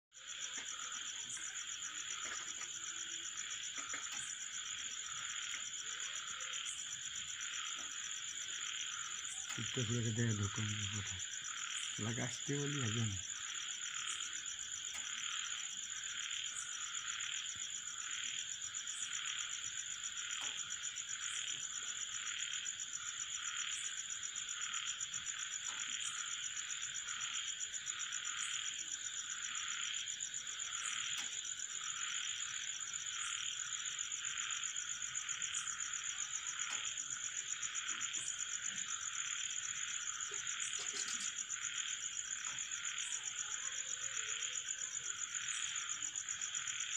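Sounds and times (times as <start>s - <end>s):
frogs calling: 0.2s - 46.9s
insects buzzing: 0.2s - 46.9s.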